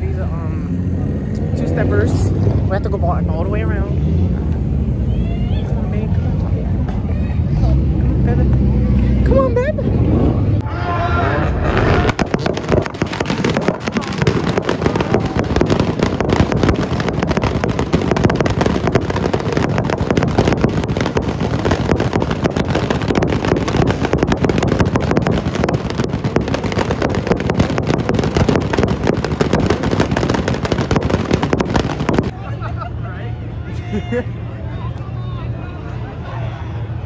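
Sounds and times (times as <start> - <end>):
exhaust pops crackling: 11.7 - 32.3.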